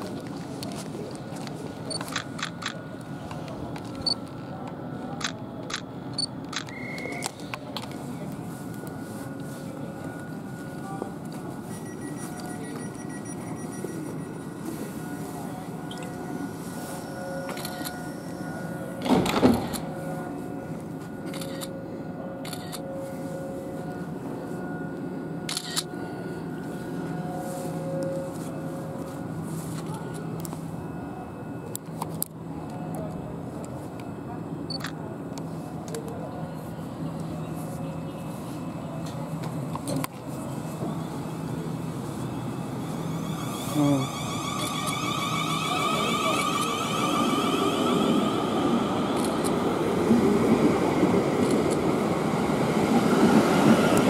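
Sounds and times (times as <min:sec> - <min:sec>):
train low hum: 0:00.0 - 0:54.0
short high beeps: 0:06.6 - 0:07.3, 0:11.7 - 0:16.2.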